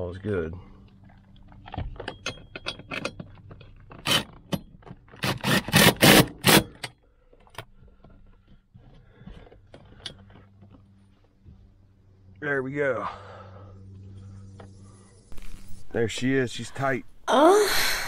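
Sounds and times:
tools clinking and rattling: 1.0 - 5.6, 9.7 - 11.0
impact driver bursts: 4.0 - 4.3, 5.2 - 6.9.

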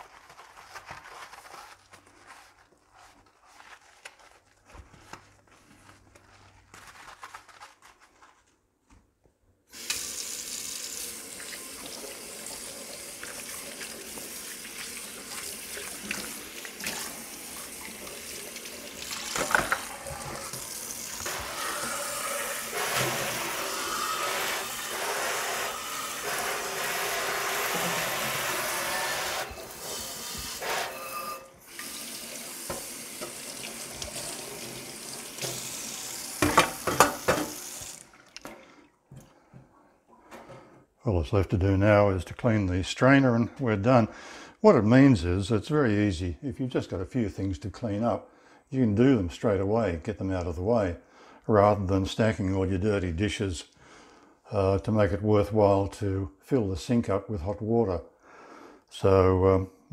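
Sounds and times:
tap water running and splashing: 9.7 - 30.8, 31.6 - 39.3
scrubbing dishes in a sink: 11.4 - 30.9, 31.6 - 40.8
dishes knocking: 36.4 - 37.6.

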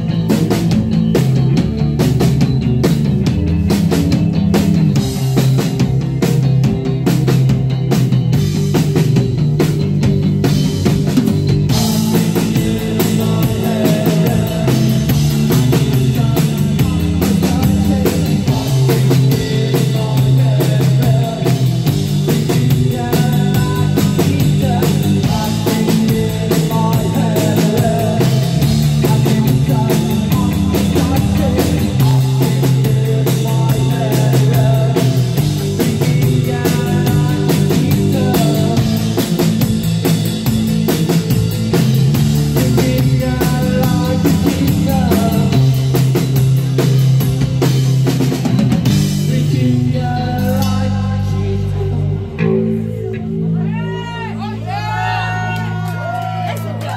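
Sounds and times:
drum beat with cymbals: 0.0 - 49.6
rock band playing: 0.0 - 56.9
man singing: 11.6 - 40.2, 41.0 - 46.9, 48.8 - 55.6.

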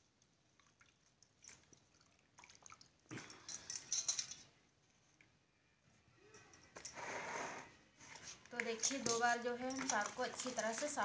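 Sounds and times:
water sloshing: 0.5 - 3.2, 8.0 - 11.0
hands swishing spinach in water: 8.0 - 11.0.

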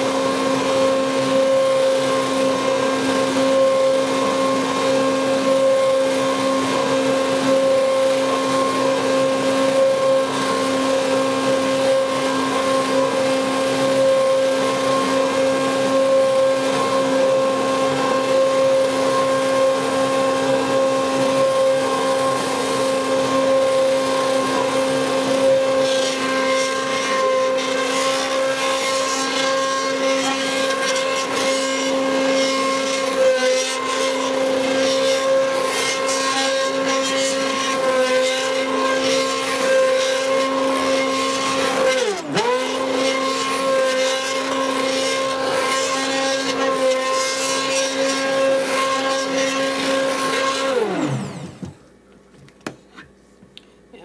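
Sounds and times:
stick blender motor whine: 0.0 - 51.9.

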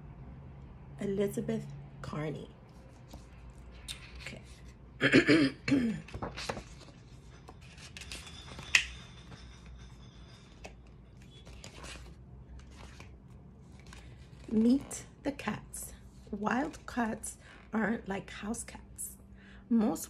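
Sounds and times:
paper pages rustling: 2.7 - 4.8, 6.0 - 15.0.

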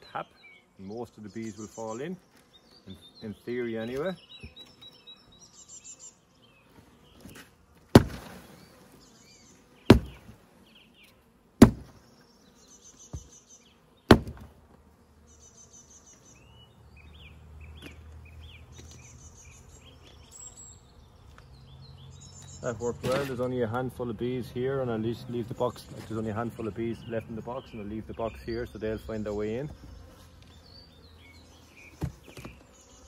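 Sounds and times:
bees humming: 0.0 - 33.0
knocks on cardboard box: 8.0 - 8.3, 9.9 - 10.2, 11.6 - 11.9, 14.1 - 14.5, 32.0 - 32.6.

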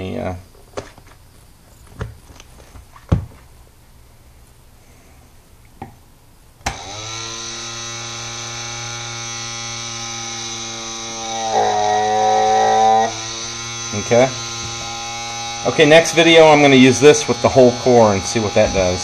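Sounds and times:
small electric motor humming: 6.6 - 19.0.

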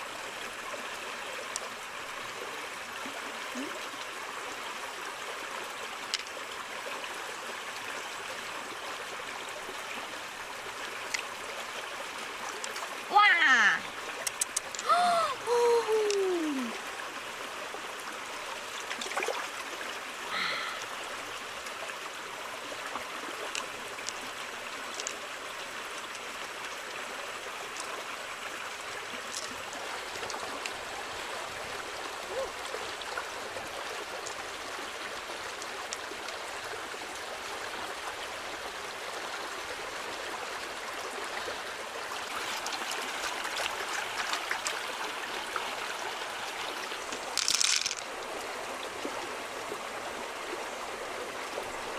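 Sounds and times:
stream flowing over stones: 0.0 - 51.9
faint clicks: 14.2 - 14.9.

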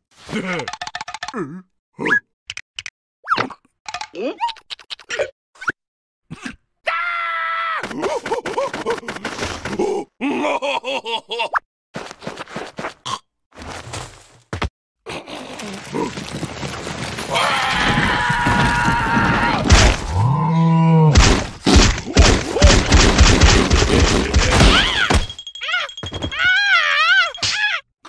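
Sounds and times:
fast thuds and knocks: 21.2 - 25.4
strained cartoon cry: 24.3 - 27.9.

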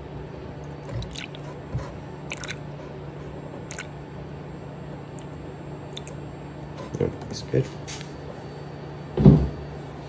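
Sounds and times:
steady low hum: 0.0 - 10.0
liquid glugging: 0.7 - 2.8, 3.6 - 4.0, 5.1 - 6.2
coolant pouring through funnel: 0.9 - 1.4, 2.2 - 2.6.

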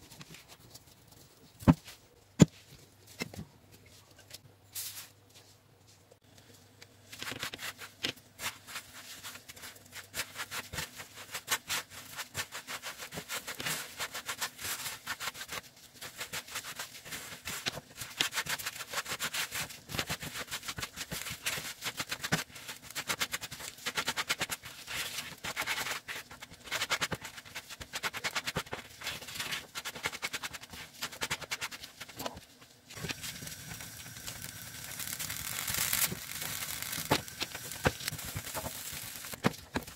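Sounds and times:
spatula scraping frying pan: 33.0 - 39.4.

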